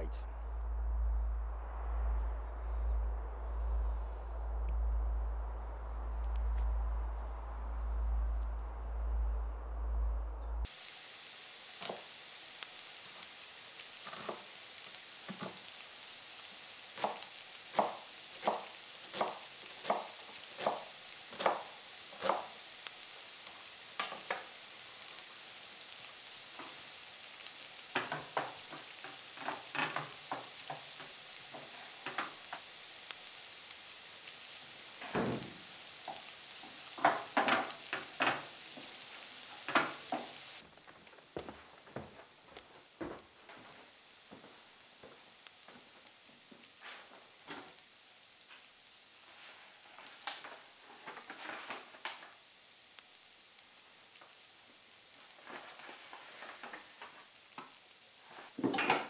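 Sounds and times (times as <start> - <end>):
vegetables sizzling in a frying pan: 10.6 - 59.0.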